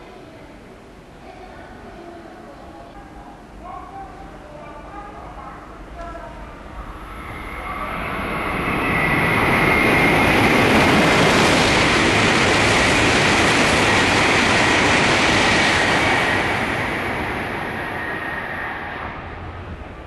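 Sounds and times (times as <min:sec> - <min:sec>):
high-speed train passing: 0:00.6 - 0:20.0
steady high whine: 0:05.8 - 0:20.0.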